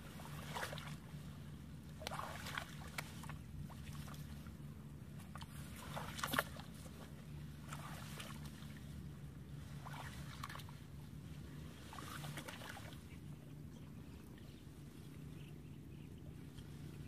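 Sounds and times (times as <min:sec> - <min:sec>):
water splashing around wading legs: 0:00.0 - 0:13.2
faint low hum: 0:00.0 - 0:17.0.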